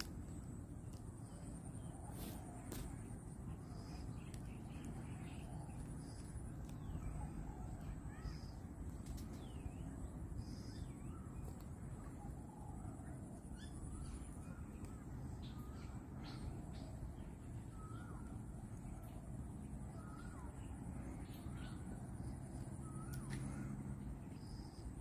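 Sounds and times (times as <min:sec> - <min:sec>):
birds calling: 0:00.0 - 0:25.0
faint high-pitched whine: 0:00.0 - 0:25.0.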